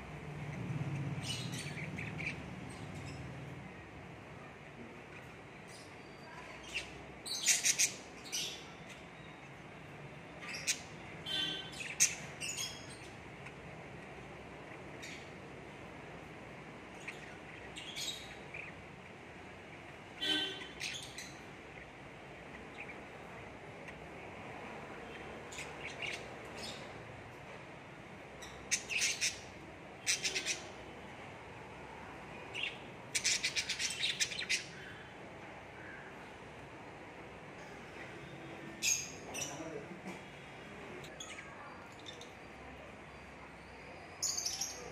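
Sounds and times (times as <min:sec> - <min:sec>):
cockatiels chirping and squawking: 0:06.7 - 0:08.6, 0:28.7 - 0:30.7, 0:32.6 - 0:34.8.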